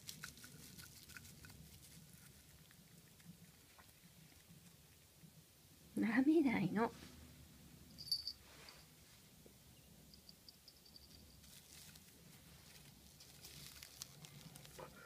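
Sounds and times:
faint room hum: 0:00.0 - 0:15.0
faint soft rustle: 0:06.8 - 0:09.5, 0:10.8 - 0:15.0.

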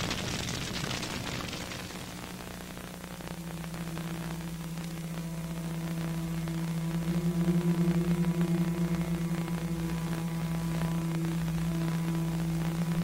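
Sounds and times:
low sustained drone: 0:03.5 - 0:13.0
higher wavering tone: 0:05.2 - 0:13.0.

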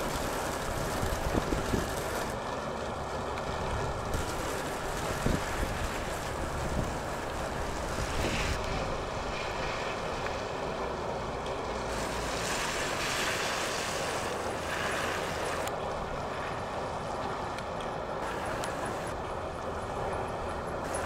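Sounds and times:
tyres hissing through water: 0:00.0 - 0:02.4, 0:04.1 - 0:15.8, 0:18.1 - 0:19.2.

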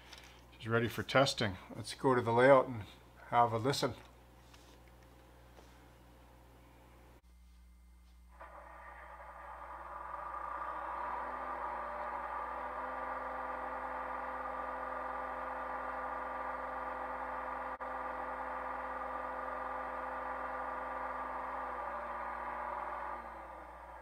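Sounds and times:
model diesel generator sound hum: 0:06.6 - 0:24.0.

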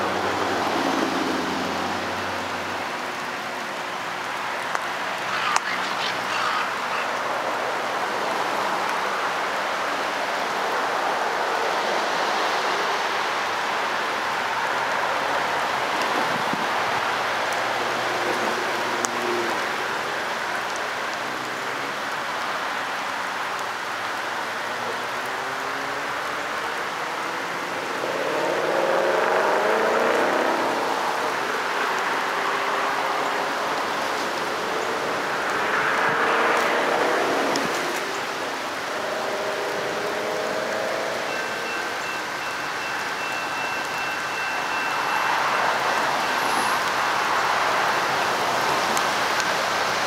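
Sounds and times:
steady rain hiss: 0:00.0 - 0:50.0.

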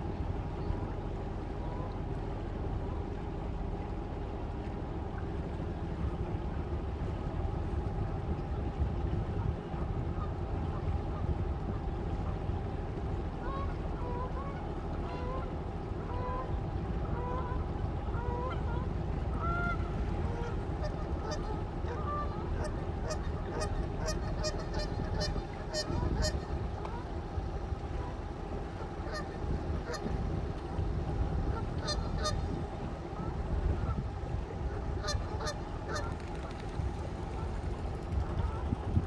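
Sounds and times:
boat engine rumble: 0:00.0 - 0:39.0
geese honking: 0:13.4 - 0:27.2, 0:27.8 - 0:30.2, 0:31.4 - 0:37.6.

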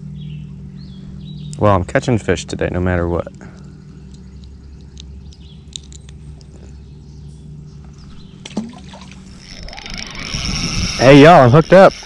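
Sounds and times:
faint low hum: 0:00.0 - 0:12.0
hands handling fishing line clicks: 0:03.6 - 0:06.7
small fish splashing into water: 0:08.4 - 0:09.3.

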